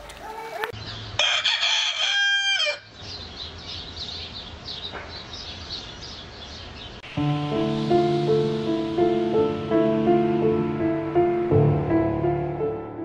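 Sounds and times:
small birds chirping: 0:00.1 - 0:01.2, 0:02.9 - 0:09.6
rooster crowing: 0:01.2 - 0:02.9.

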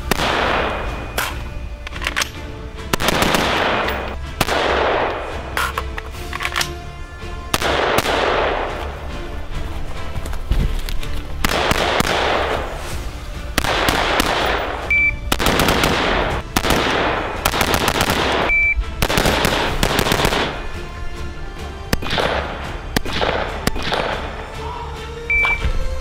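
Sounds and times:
rifle shots in bursts: 0:00.0 - 0:01.4, 0:02.8 - 0:05.8, 0:07.5 - 0:08.8, 0:11.4 - 0:12.8, 0:13.6 - 0:20.7, 0:21.9 - 0:24.3
background music: 0:00.0 - 0:26.0.

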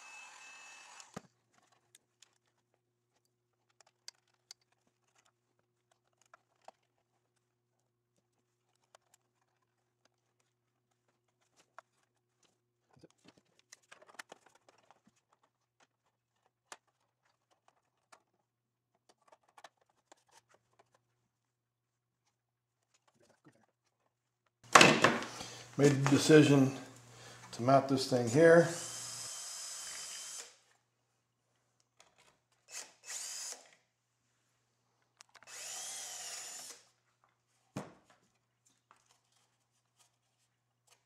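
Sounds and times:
heat gun blowing: 0:00.0 - 0:01.2, 0:28.6 - 0:30.6, 0:32.7 - 0:33.8, 0:35.4 - 0:36.9
faint clicks and rustles of wires: 0:01.0 - 0:28.4, 0:30.6 - 0:32.7, 0:33.7 - 0:35.5, 0:36.9 - 0:41.0.

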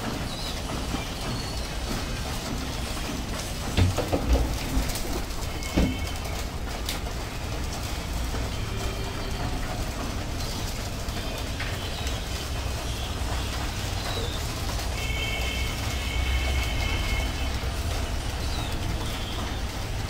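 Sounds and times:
pigeons pecking and shuffling: 0:00.0 - 0:20.0.

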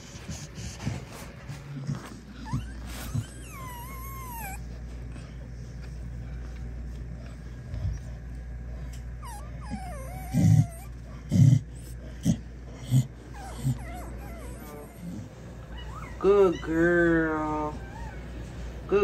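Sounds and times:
puppies squeaking and whimpering: 0:02.3 - 0:04.7, 0:09.2 - 0:11.0, 0:13.3 - 0:18.4.

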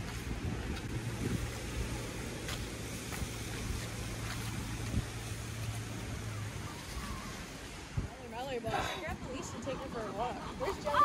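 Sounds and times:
wind on microphone: 0:00.0 - 0:02.4, 0:07.0 - 0:11.0.

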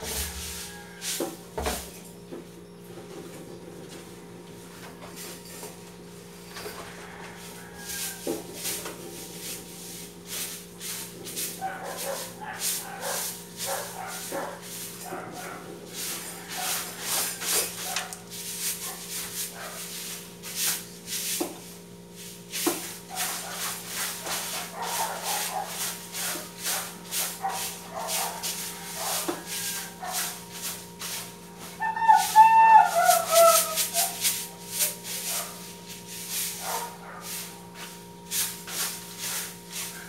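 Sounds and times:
steady electrical hum: 0:00.0 - 0:40.0
hand scrubbing counter: 0:07.0 - 0:21.6, 0:22.5 - 0:40.0.

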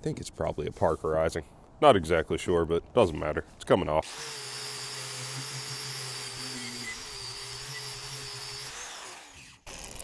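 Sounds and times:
angle grinder wire brushing metal: 0:04.1 - 0:10.0.

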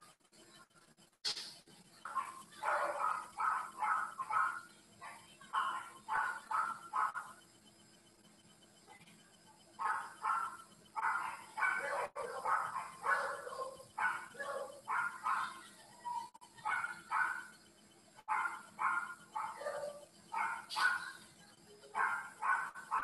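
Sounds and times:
dog barking: 0:02.1 - 0:07.4, 0:09.8 - 0:17.5, 0:18.2 - 0:21.2, 0:21.9 - 0:23.0.

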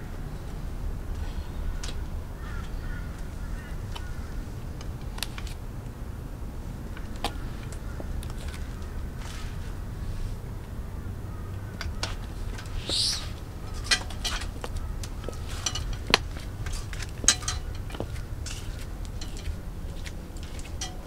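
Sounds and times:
high squeak: 0:12.7 - 0:13.4.

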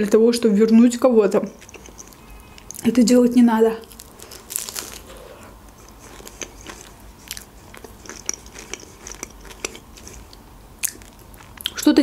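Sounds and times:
chewing with crackly crunches: 0:01.5 - 0:03.0, 0:03.8 - 0:11.9
crunchy bite into pastry: 0:03.8 - 0:07.9.

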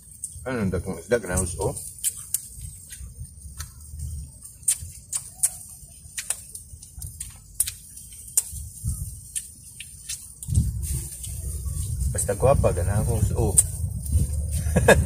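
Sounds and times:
sharp clicks and smacks: 0:01.2 - 0:11.4, 0:13.4 - 0:14.2
low steady rumble: 0:10.4 - 0:15.0.

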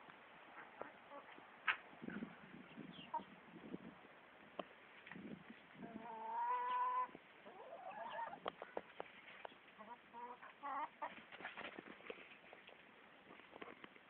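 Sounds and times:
chickens clucking: 0:00.5 - 0:03.4, 0:05.0 - 0:13.7.

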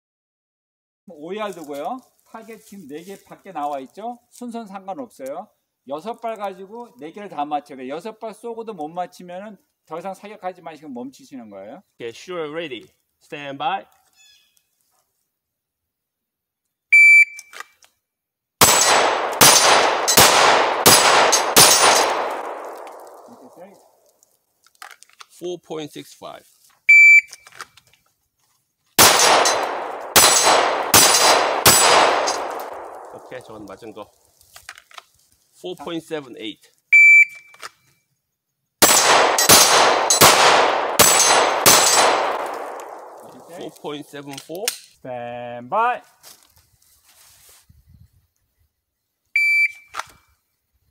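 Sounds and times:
shot timer beep: 0:17.0 - 0:17.4, 0:37.0 - 0:37.5, 0:49.4 - 0:49.9
handgun shots: 0:18.6 - 0:23.5, 0:29.0 - 0:33.4, 0:38.8 - 0:43.6
gunshot echo: 0:18.6 - 0:23.6, 0:29.0 - 0:33.6, 0:38.8 - 0:43.7.

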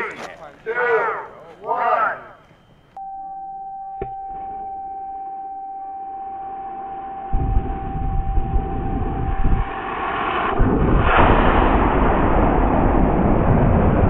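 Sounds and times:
steady electronic tone: 0:02.4 - 0:10.6
rocket motor rumbling hiss: 0:07.4 - 0:14.0.

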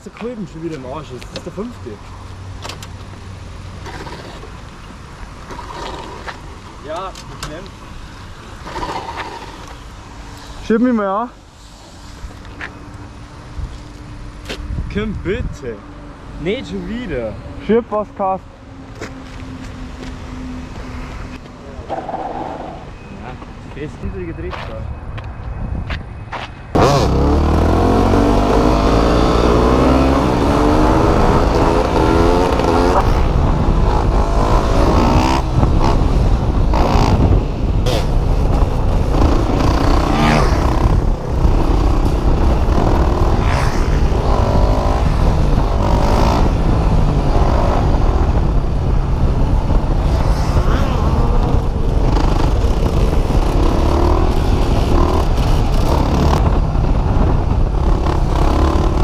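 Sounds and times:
motorcycle engine revving: 0:26.8 - 0:59.0.

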